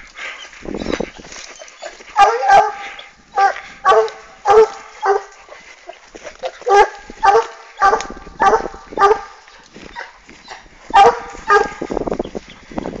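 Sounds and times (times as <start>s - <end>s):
hounds baying: 0.0s - 12.6s.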